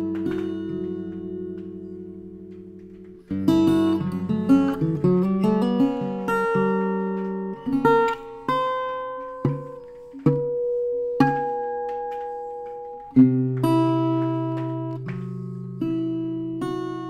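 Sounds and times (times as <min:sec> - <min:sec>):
acoustic guitar fingerpicked: 0:00.0 - 0:17.0.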